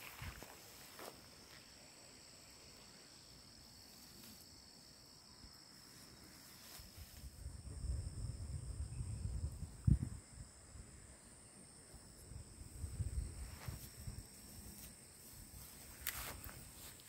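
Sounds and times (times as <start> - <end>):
faint outdoor hiss: 0.0 - 17.0
insects chirring: 0.0 - 17.0
low rumble on microphone: 7.4 - 10.8.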